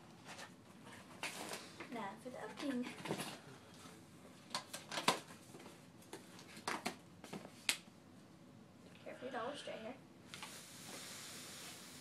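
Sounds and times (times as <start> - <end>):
packaging clicks and rustles: 4.5 - 5.4.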